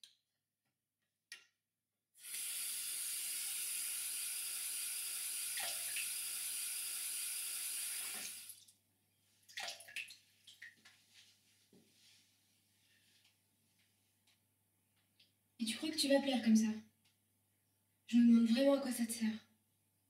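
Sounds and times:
tap running into a sink: 7.9s - 8.4s.

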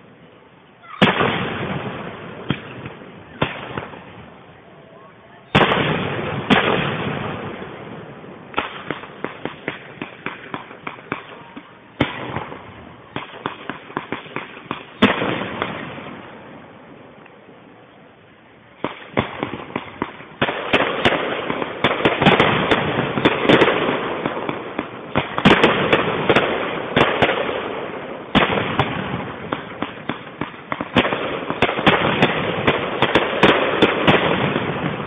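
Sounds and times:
rapid crackling pops: 8.5s - 15.8s.

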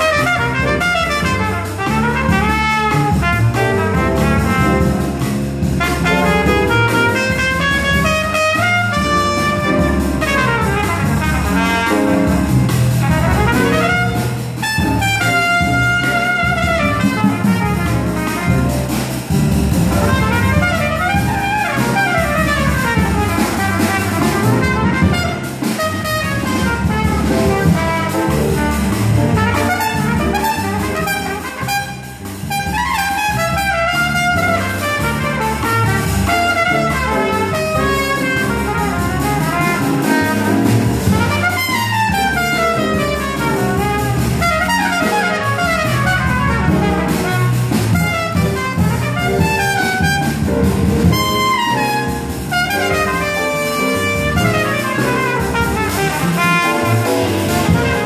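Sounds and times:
drums: 0.0s - 58.0s
trumpet solo: 0.0s - 58.0s
upright bass: 0.0s - 58.0s.

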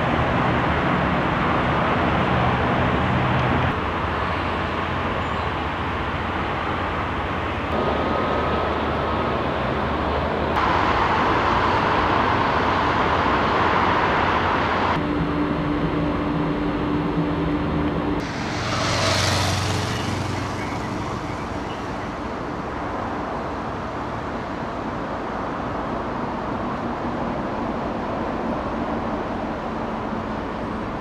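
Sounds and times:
distant traffic rumble: 0.0s - 31.0s
rushing noise: 7.5s - 30.5s.

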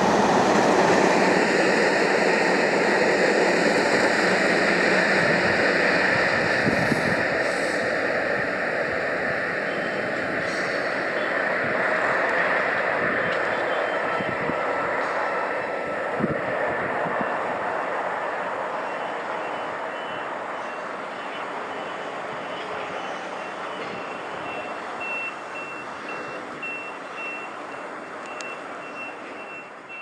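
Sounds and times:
freight train rolling on rails: 0.0s - 30.0s
faint high beep: 18.8s - 30.0s.

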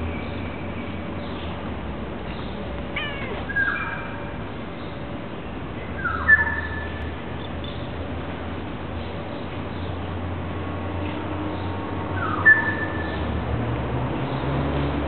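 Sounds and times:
cat meowing: 2.9s - 4.0s.

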